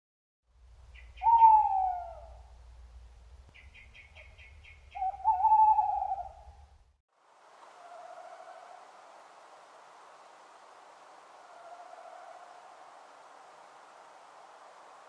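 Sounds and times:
owl hooting: 1.0 - 2.5, 3.6 - 6.6, 11.4 - 12.9.

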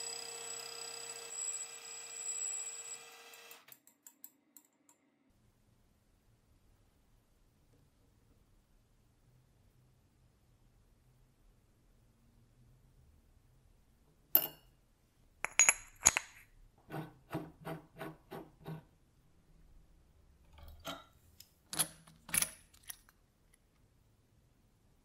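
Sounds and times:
metallic clicks and clinks: 15.5 - 16.4, 21.7 - 23.2
evenly spaced knocks: 16.9 - 18.9.

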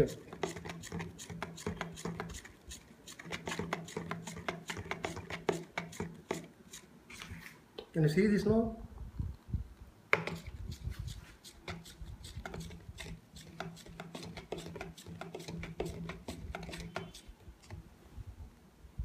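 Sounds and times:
spoon stirring in plastic cup: 0.0 - 7.3, 10.2 - 17.8.

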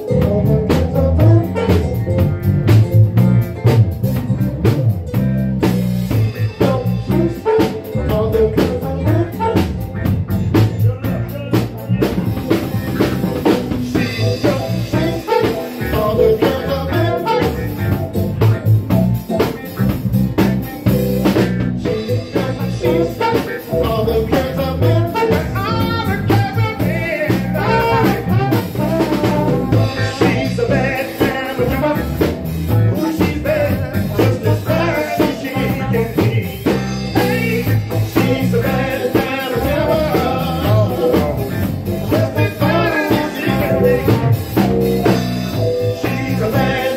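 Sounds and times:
person singing: 0.0 - 2.0, 6.1 - 9.8, 13.8 - 18.5, 21.8 - 46.9
trombones: 0.0 - 3.5, 6.1 - 46.9
drum kit: 0.0 - 46.9
electric bass guitar: 0.0 - 46.9
keyboard: 0.0 - 46.9.

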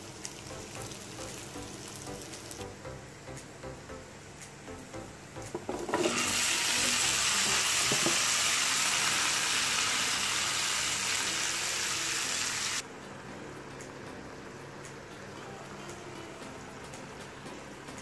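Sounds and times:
loud frying sizzle: 0.0 - 18.0
vegetable cubes knocking into pan: 5.4 - 6.3.

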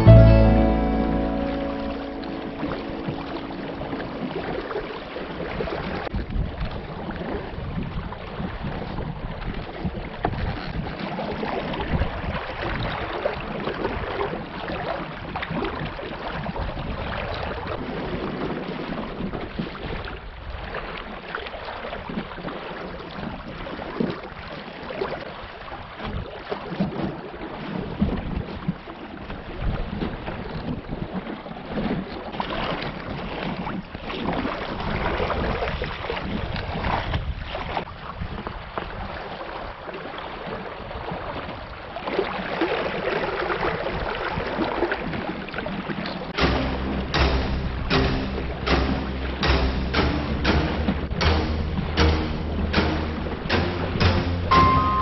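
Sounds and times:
water splashing along boat hull: 2.1 - 55.0
wind buffeting microphone: 3.1 - 20.7, 25.9 - 39.8.

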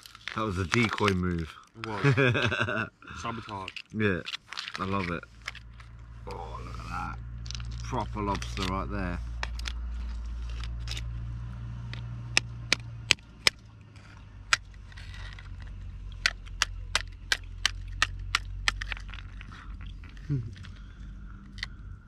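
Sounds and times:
lobster shell cracking: 0.0 - 1.9, 3.4 - 5.9, 9.4 - 11.1, 14.5 - 21.8
steady low hum: 4.8 - 22.0.

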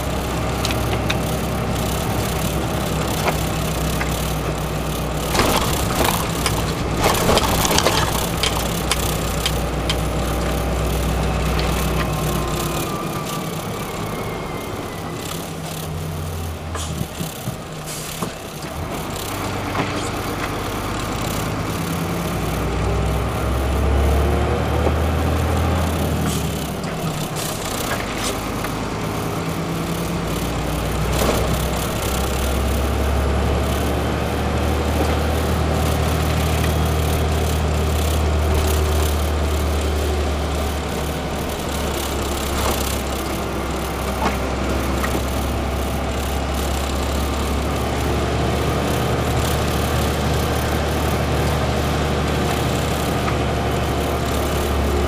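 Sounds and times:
knocks and rattles: 0.0 - 22.7
truck engine running: 0.0 - 55.0.

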